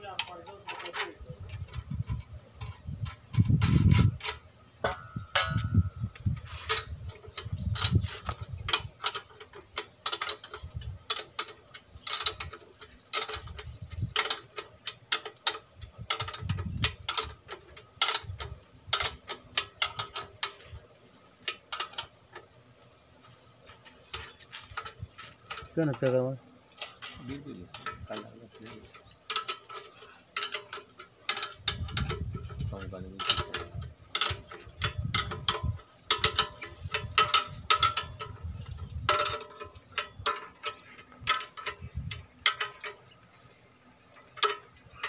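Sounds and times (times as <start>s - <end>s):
metallic clicks and clanks: 0.0s - 22.5s, 23.2s - 45.0s.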